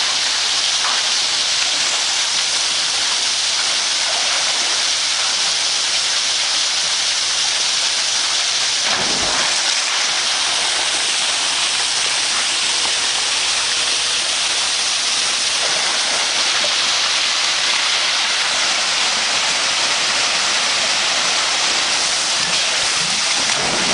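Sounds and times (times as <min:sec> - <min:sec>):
water pouring down waterslide: 0:00.0 - 0:23.9.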